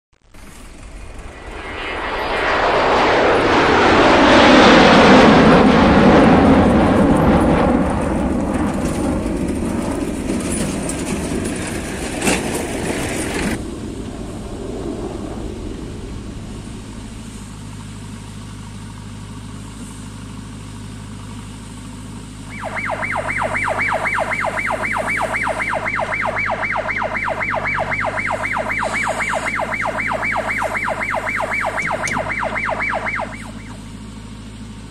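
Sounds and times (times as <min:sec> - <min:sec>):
tractor engine: 0:00.2 - 0:13.6, 0:15.7 - 0:34.9
siren-like electronic warble: 0:00.6 - 0:06.6, 0:22.5 - 0:34.0.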